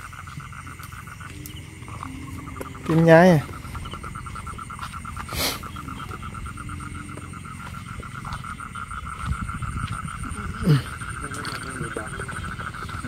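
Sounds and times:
frogs calling: 0.0s - 13.0s
thin high trill: 1.2s - 7.9s.

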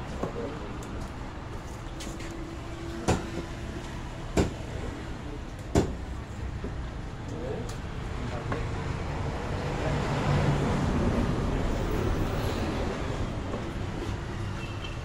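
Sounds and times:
knife chopping on wooden block: 5.7s - 6.0s.

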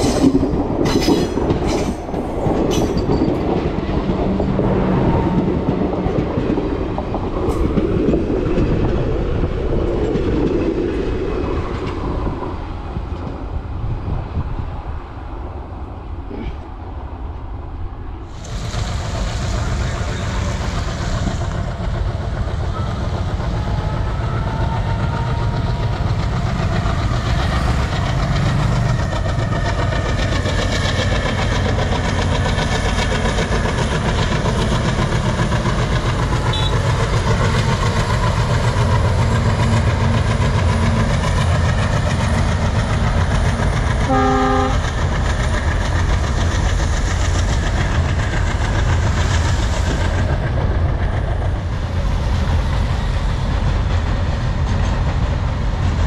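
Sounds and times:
freight train rumbling: 0.0s - 56.0s
train horn blast: 36.5s - 36.9s, 44.1s - 44.9s.

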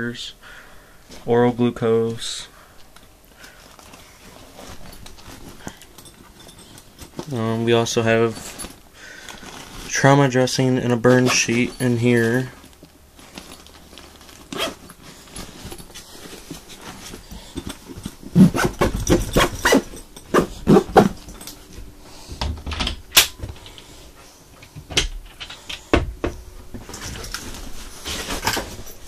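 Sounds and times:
nylon bag rasping: 8.3s - 10.0s, 13.2s - 21.4s.

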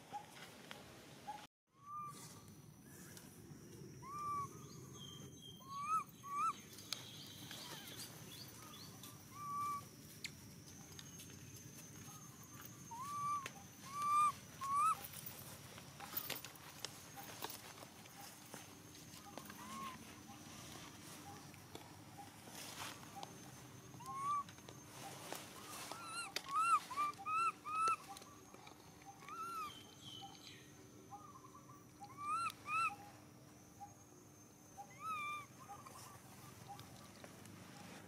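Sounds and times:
baby monkey squeaking: 5.6s - 6.6s, 9.3s - 9.8s, 12.9s - 15.0s, 24.0s - 24.4s, 26.0s - 28.2s, 29.2s - 29.7s, 32.0s - 33.0s, 34.8s - 36.0s.

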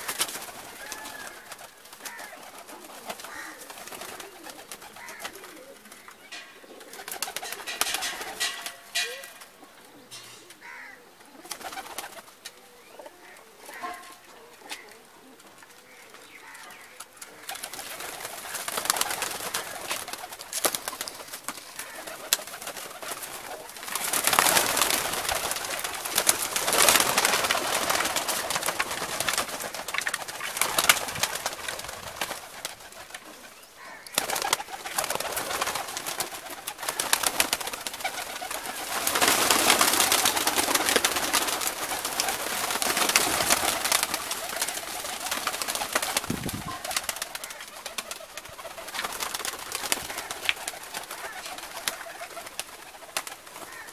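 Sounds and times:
pigeons flapping wings: 0.0s - 9.5s, 10.5s - 12.5s, 13.2s - 53.9s
pigeons cooing: 0.0s - 53.9s.

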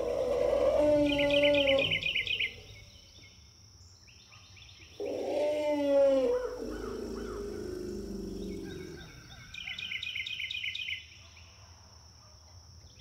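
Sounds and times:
elephant calls: 0.0s - 2.8s, 5.0s - 9.4s
birds chirping: 0.0s - 11.0s.

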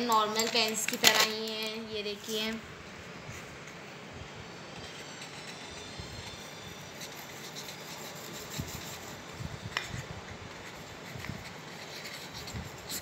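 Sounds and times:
pen scratching on paper: 7.0s - 9.3s, 10.5s - 13.0s.

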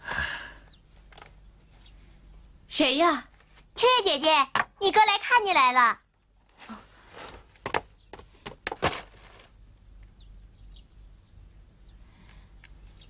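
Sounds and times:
faint bird chirps: 0.2s - 3.2s, 10.0s - 13.0s.

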